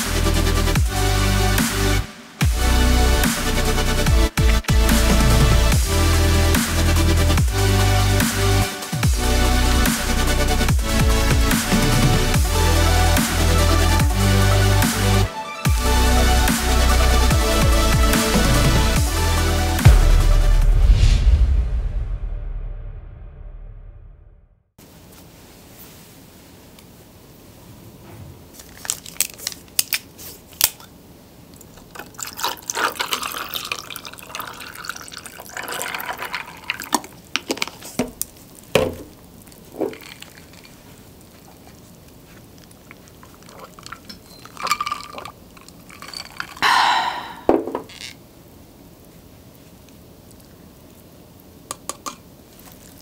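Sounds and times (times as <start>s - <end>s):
sauce pouring onto noodles: 31.6s - 47.4s
drink pouring over ice: 31.6s - 48.1s
bottle and ice clinking: 31.8s - 38.2s, 39.7s - 40.9s, 43.4s - 48.2s.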